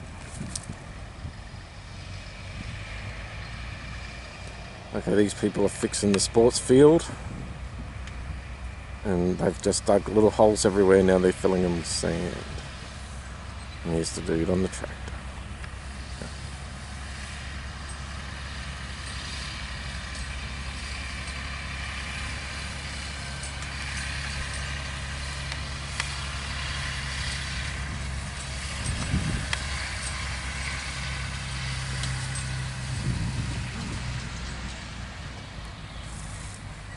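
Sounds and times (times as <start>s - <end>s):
tractor diesel engine running: 0.0s - 36.9s.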